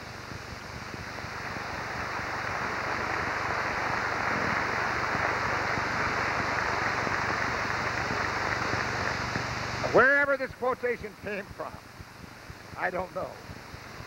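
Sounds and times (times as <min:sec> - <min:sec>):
faint low hum: 0:00.0 - 0:14.0
audience applauding: 0:01.2 - 0:10.0.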